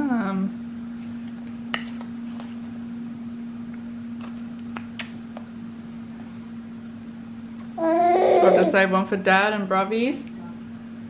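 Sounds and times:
machine humming: 2.7s - 11.0s.

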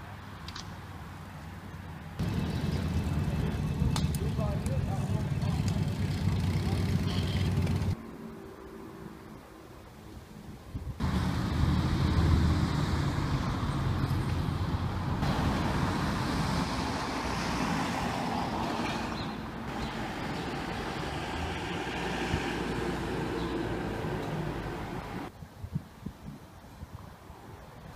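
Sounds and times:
traffic hiss and rumble: 0.0s - 27.9s
vehicle passing close by: 1.7s - 8.0s, 11.0s - 25.3s.

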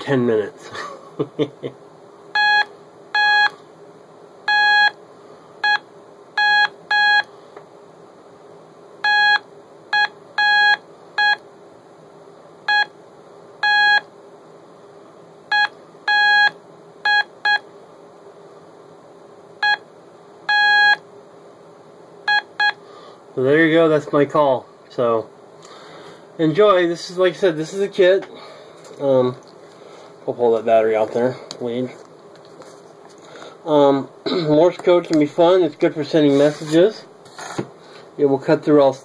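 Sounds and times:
morse code oscillator beeping: 2.4s - 3.5s, 4.5s - 5.0s, 6.4s - 7.3s, 9.1s - 9.4s, 10.0s - 11.4s, 13.6s - 14.0s, 15.5s - 16.5s, 17.1s - 17.6s, 19.6s - 19.8s, 20.5s - 21.0s, 22.3s - 22.8s.

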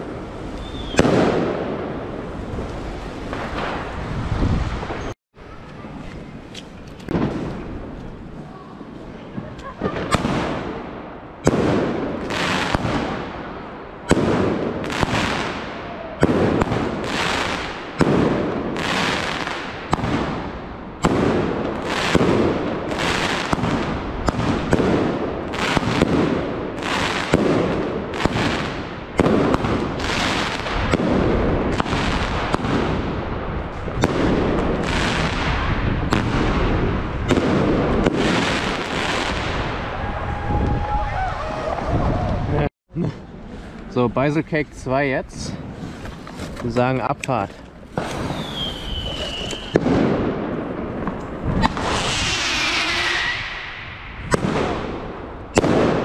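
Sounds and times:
fireworks firing with hiss: 0.0s - 5.2s, 9.4s - 13.4s, 14.0s - 40.0s, 47.9s - 56.0s.

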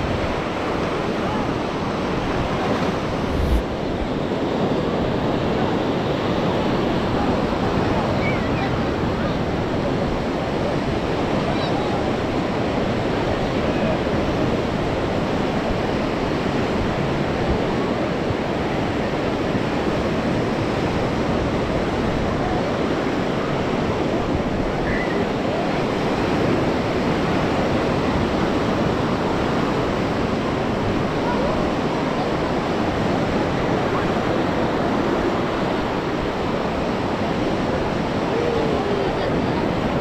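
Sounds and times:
sea surf rushing: 0.0s - 40.0s
wind: 0.0s - 40.0s.

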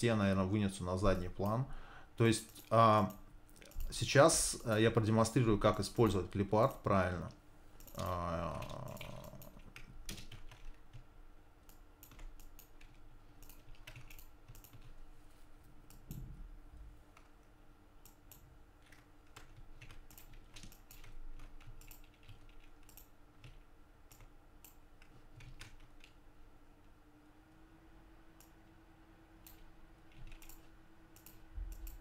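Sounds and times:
faint steady hum: 0.0s - 32.0s
keyboard and mouse clicking: 2.5s - 4.0s, 7.2s - 15.0s, 18.0s - 26.2s, 29.4s - 32.0s.

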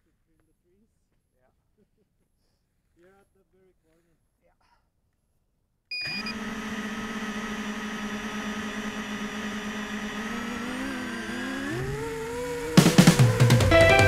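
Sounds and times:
short beep: 5.9s - 6.4s
drone propellers humming: 6.1s - 14.0s.

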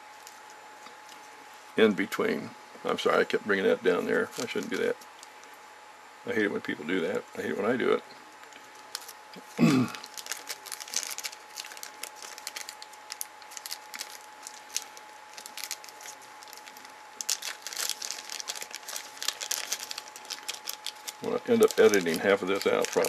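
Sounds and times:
plastic packet crinkling: 4.2s - 5.3s, 8.4s - 23.0s.

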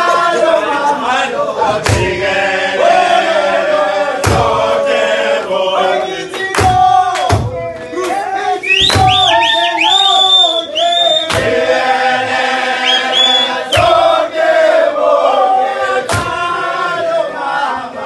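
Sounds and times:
group singing chant in unison: 0.0s - 18.0s
loud thumps: 1.7s - 2.3s, 4.2s - 4.6s, 8.8s - 9.4s.

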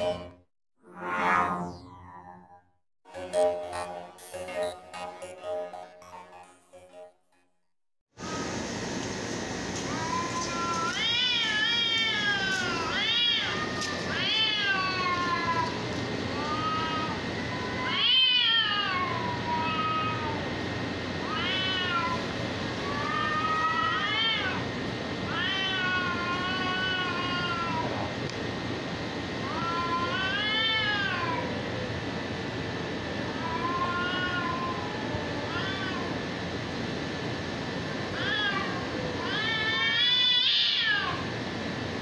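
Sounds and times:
cats yowling: 9.9s - 20.6s, 21.2s - 24.7s, 25.3s - 28.2s, 29.4s - 31.6s, 33.3s - 36.2s, 38.1s - 41.3s.

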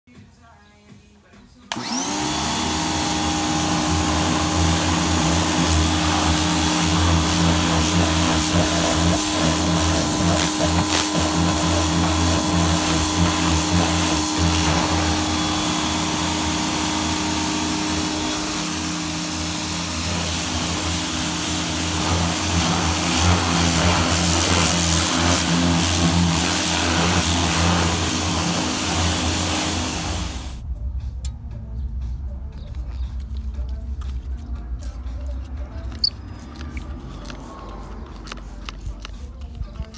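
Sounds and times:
motor hum: 1.7s - 30.6s
pressure washer jet hissing: 1.7s - 30.6s.

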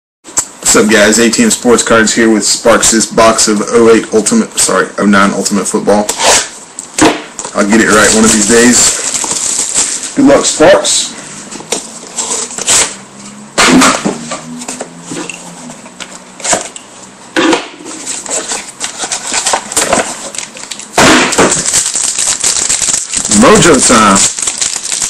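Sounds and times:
wrapper tearing and crinkling: 7.7s - 10.5s, 18.0s - 25.0s.

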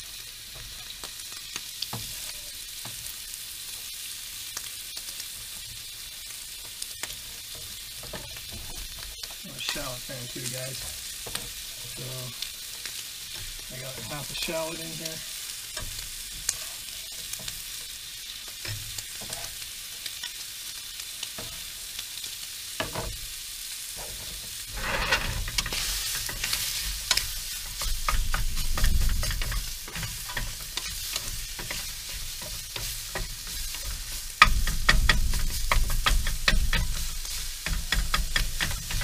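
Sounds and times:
food sizzling in a frying pan: 0.0s - 39.0s
wooden spatula scraping pan: 13.3s - 17.5s, 19.2s - 19.6s, 24.0s - 39.0s.

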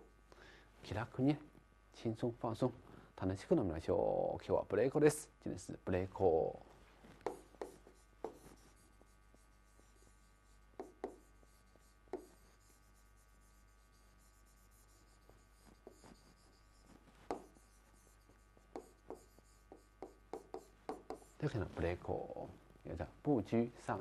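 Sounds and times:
pen tapping and scraping on board: 7.2s - 12.9s, 14.9s - 21.4s.

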